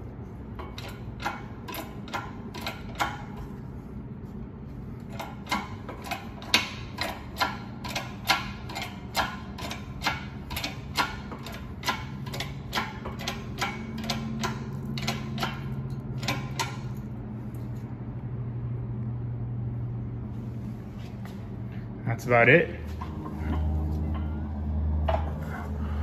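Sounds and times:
steady low hum: 0:00.0 - 0:26.0
hydraulic press pump clicks: 0:00.6 - 0:03.4, 0:05.1 - 0:16.9.

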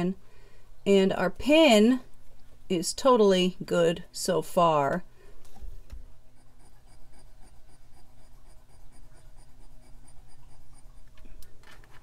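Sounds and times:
jewelry scratching on touchstone: 0:06.3 - 0:12.0.

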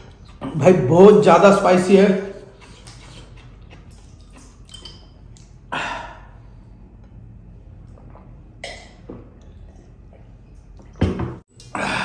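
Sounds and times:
drinking from a glass: 0:07.8 - 0:12.0.

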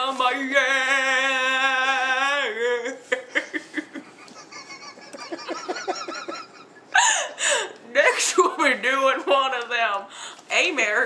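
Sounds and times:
person singing with vibrato: 0:00.0 - 0:03.8.

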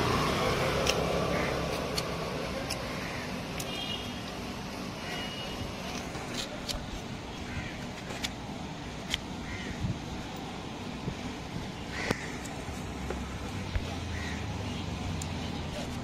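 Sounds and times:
street traffic rumble: 0:00.0 - 0:16.0
knife cutting fruit clicks: 0:00.5 - 0:04.4, 0:09.0 - 0:09.3.

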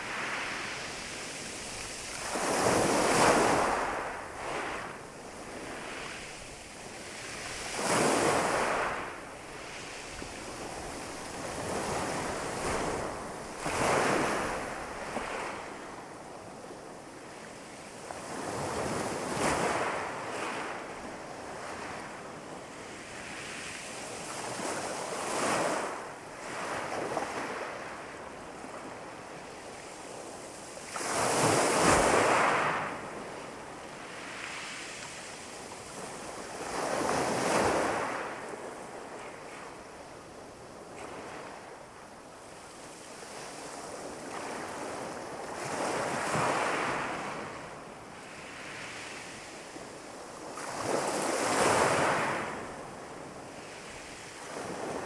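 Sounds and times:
steady sea hiss: 0:00.0 - 0:18.0.

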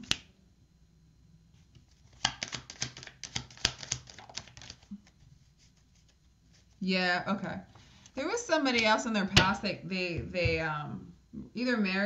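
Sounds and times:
cards clicking on a table: 0:02.1 - 0:04.8.

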